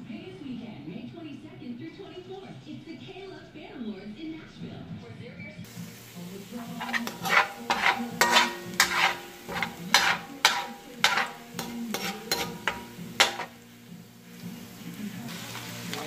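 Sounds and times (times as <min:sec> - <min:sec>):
metal spatula scraping a wok: 0:06.4 - 0:13.8.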